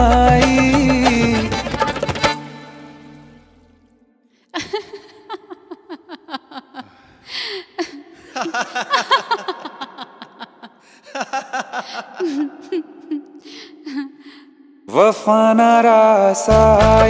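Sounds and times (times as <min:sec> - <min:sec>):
song music: 0:00.0 - 0:04.2, 0:16.0 - 0:17.0
man laughing in bursts: 0:04.6 - 0:07.0, 0:07.8 - 0:13.3.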